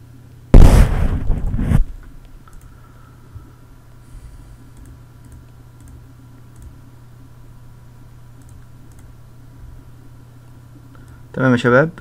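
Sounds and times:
low steady hum: 0:00.0 - 0:12.0
faint clicks: 0:02.4 - 0:02.8, 0:08.4 - 0:09.1.

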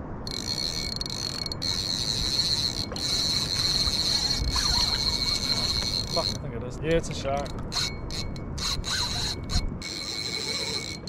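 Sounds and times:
fishing reel drag buzzing: 0:00.2 - 0:06.4, 0:07.4 - 0:11.0.

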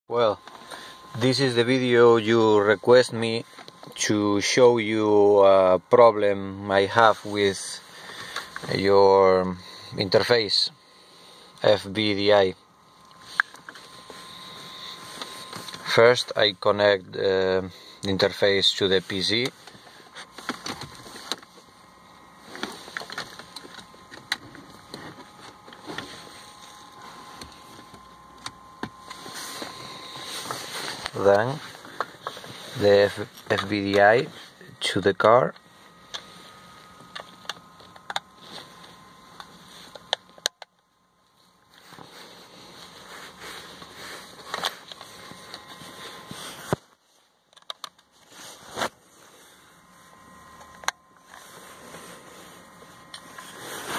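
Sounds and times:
cable rustling: 0:41.6 - 0:49.0.

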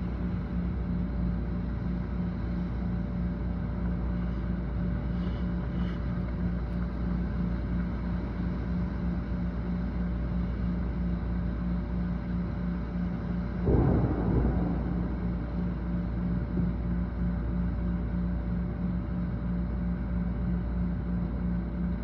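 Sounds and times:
pulsing low hum: 0:00.0 - 0:22.0
gusting wind: 0:13.7 - 0:17.6.

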